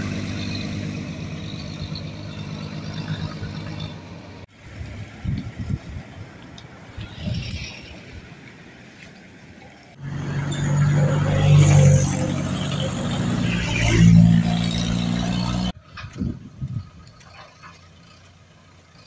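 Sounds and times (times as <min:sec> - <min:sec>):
loud engine humming: 0:00.0 - 0:04.5.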